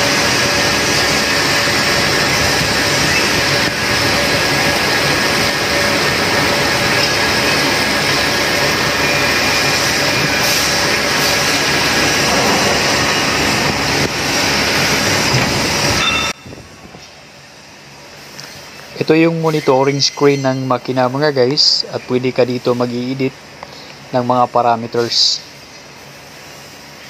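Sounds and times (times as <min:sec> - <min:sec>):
machine drilling metal: 0:00.0 - 0:16.3.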